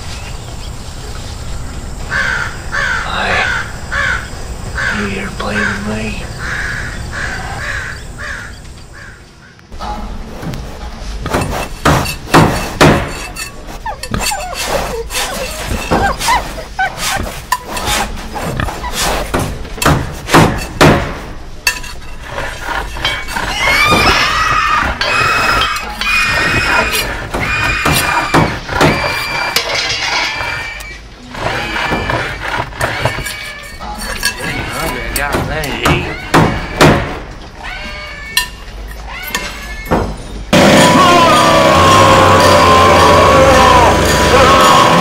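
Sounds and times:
bangs and crashes: 0:11.2 - 0:14.2, 0:18.6 - 0:22.0, 0:22.8 - 0:37.4, 0:39.3 - 0:45.0.

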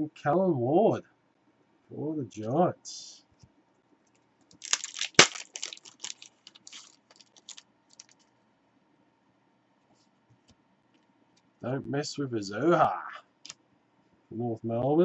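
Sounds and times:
trading cards flicked and shuffled: 0:04.5 - 0:08.3.

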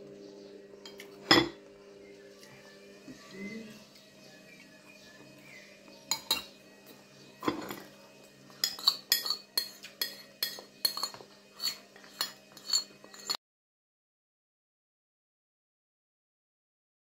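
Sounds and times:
spoon scraping plastic bowl: 0:08.6 - 0:13.4.

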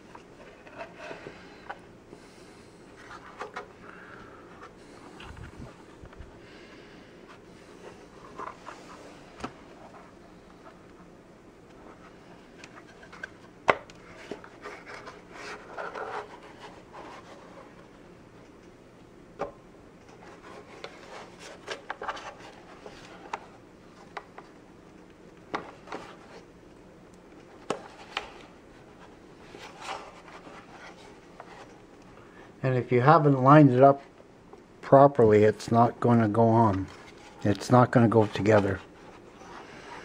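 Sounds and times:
plastic rubbing and scraping: 0:14.0 - 0:17.8.

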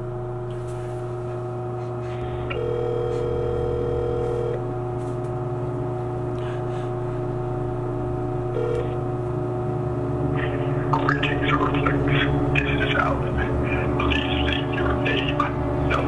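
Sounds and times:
steady low hum: 0:00.0 - 0:16.0
telephone ringback tone: 0:02.5 - 0:04.6, 0:08.5 - 0:09.0.

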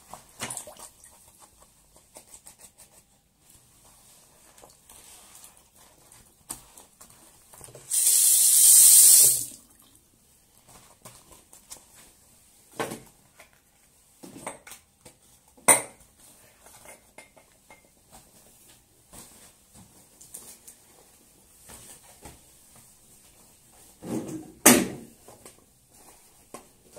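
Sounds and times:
water hissing: 0:07.9 - 0:09.6.

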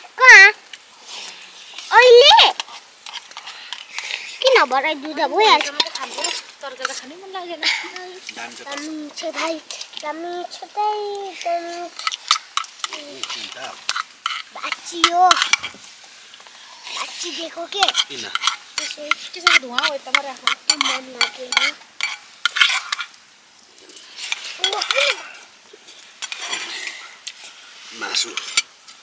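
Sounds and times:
metal spoons clinking on steel bowls: 0:17.8 - 0:23.1, 0:23.9 - 0:25.2.

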